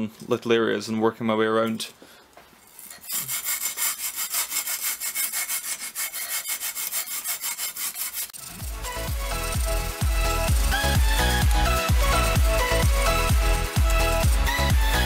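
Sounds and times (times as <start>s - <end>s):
sandpaper rasping in metal tube: 2.8s - 15.0s
electronic music with a beat: 8.4s - 15.0s.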